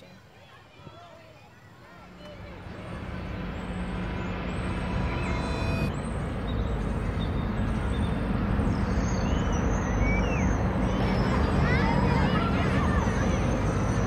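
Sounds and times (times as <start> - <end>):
city traffic noise: 1.7 - 14.0.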